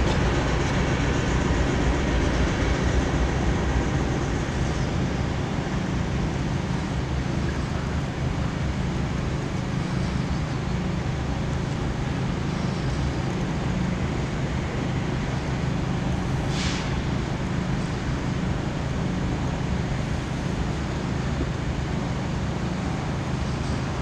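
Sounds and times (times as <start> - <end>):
engines rumbling: 0.0 - 24.0
short hiss: 16.4 - 17.0.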